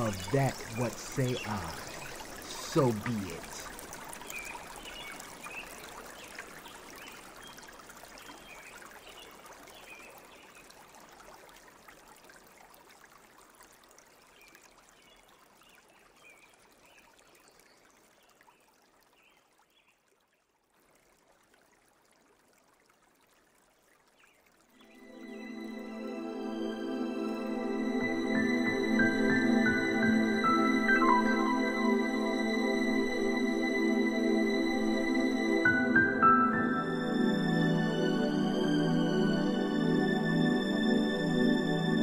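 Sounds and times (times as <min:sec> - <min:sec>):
stream trickling: 0:00.0 - 0:42.0.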